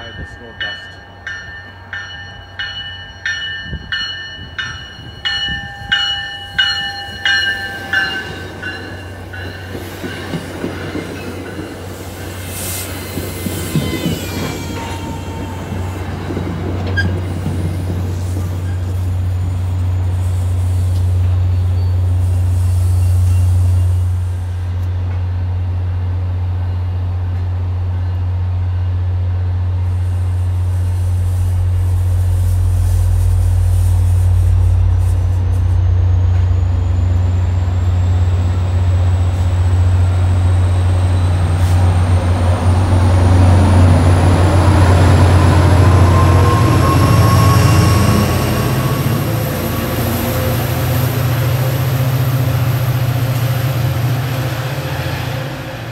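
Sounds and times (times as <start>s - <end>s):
train rolling on rails: 0.0s - 55.9s
low diesel engine drone: 31.6s - 54.5s.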